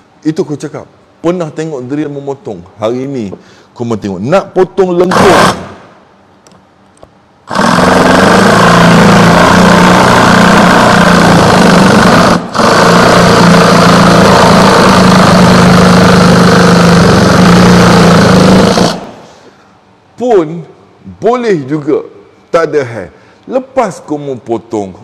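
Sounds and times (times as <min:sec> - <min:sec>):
jigsaw cutting wood: 0:05.1 - 0:05.7, 0:07.5 - 0:19.2.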